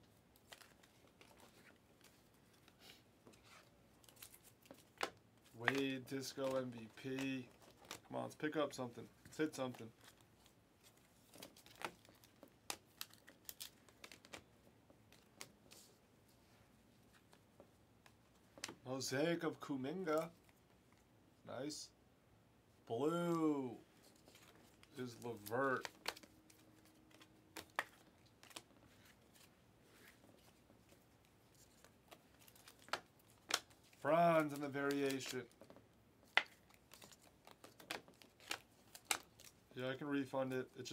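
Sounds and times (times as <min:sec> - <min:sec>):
cards flipped by hand clicking: 0:04.1 - 0:08.0, 0:31.6 - 0:39.5
trading cards snapping and sliding: 0:32.4 - 0:35.4.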